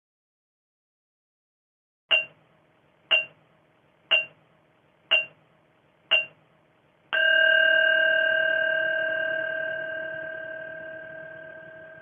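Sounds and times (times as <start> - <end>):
long ringing bell tone: 7.2 - 12.0
short bell pings: 7.2 - 12.0.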